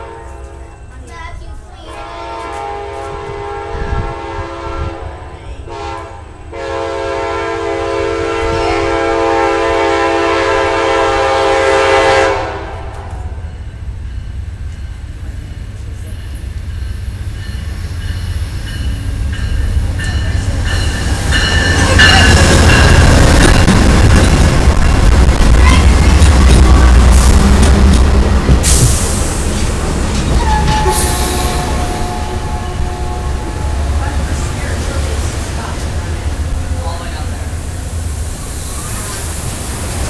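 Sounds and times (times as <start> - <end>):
locomotive air horn blasts: 0.0 - 0.5, 1.9 - 13.0, 30.4 - 34.1
train engines and wheels rumbling: 0.0 - 40.0.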